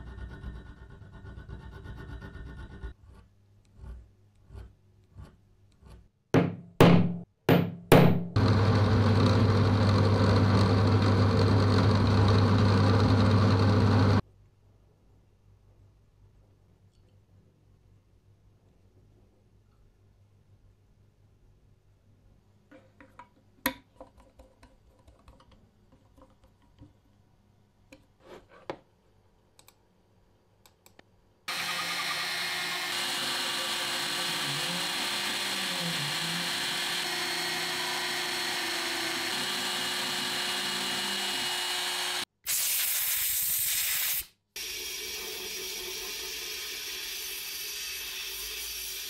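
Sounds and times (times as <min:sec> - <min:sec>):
engraving machine spindle running: 0:31.5 - 0:42.2
sandblaster hissing: 0:42.4 - 0:49.0.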